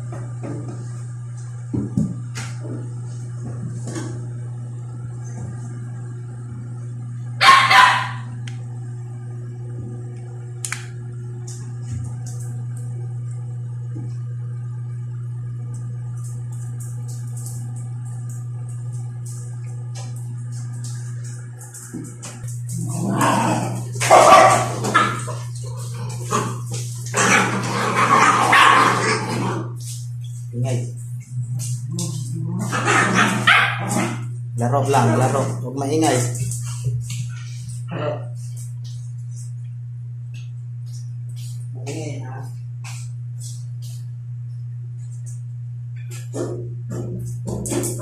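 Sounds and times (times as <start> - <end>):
low hum: 0.0 - 48.0
dog barking: 7.4 - 8.4, 24.0 - 25.4, 28.0 - 29.2, 32.7 - 34.2
dogs barking: 7.4 - 8.4, 22.7 - 30.0, 32.1 - 34.3.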